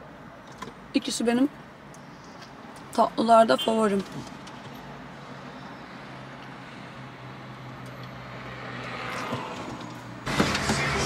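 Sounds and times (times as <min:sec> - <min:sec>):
road noise: 0:00.0 - 0:11.0
vehicle passing by: 0:05.3 - 0:11.0
car interior hum: 0:08.3 - 0:11.0.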